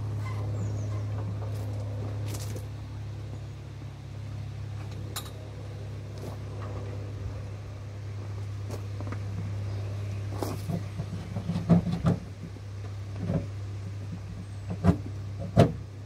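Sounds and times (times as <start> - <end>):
tractor diesel engine idling: 0.0 - 11.6.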